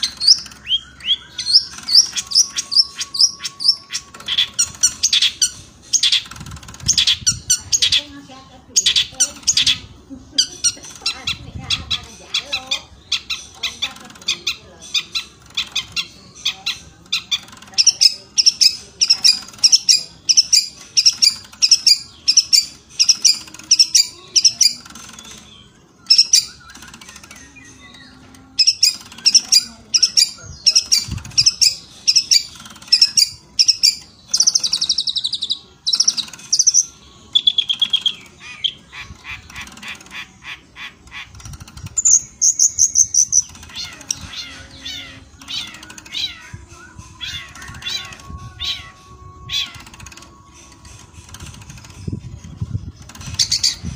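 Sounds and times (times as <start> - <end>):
shrike chattering song: 0.0 - 53.9.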